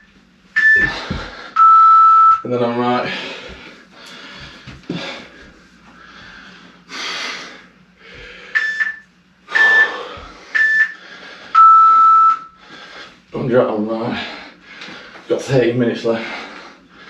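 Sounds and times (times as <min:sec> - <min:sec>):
long low timer beep: 0:00.0 - 0:00.9, 0:01.6 - 0:02.4, 0:08.6 - 0:11.0, 0:11.6 - 0:12.5
man panting heavily: 0:00.8 - 0:01.6, 0:02.7 - 0:08.6, 0:09.5 - 0:11.6, 0:12.6 - 0:13.3, 0:14.0 - 0:15.3.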